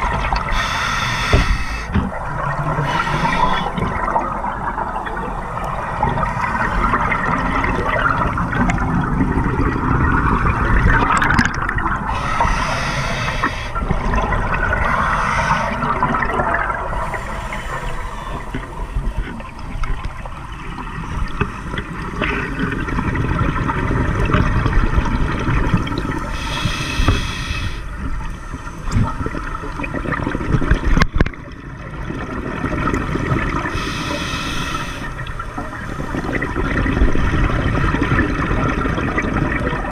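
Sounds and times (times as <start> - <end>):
underwater bubbling of exhaled air: 0.0 - 39.9
hissing breaths through regulator: 0.4 - 2.0, 2.8 - 3.8, 12.1 - 13.9, 14.8 - 16.1, 16.9 - 19.0, 26.3 - 28.0, 33.7 - 35.2.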